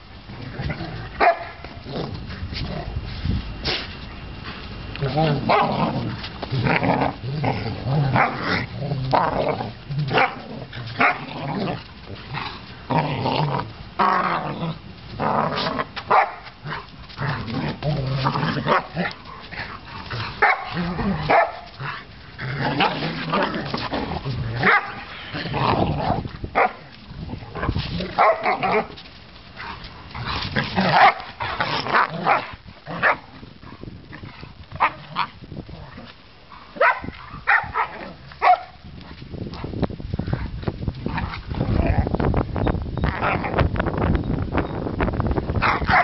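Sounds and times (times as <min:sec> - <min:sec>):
dogs barking and yipping: 0:01.0 - 0:01.8, 0:10.0 - 0:12.7, 0:15.6 - 0:17.8, 0:18.4 - 0:25.6, 0:26.5 - 0:33.9, 0:36.5 - 0:38.8, 0:45.6 - 0:46.0.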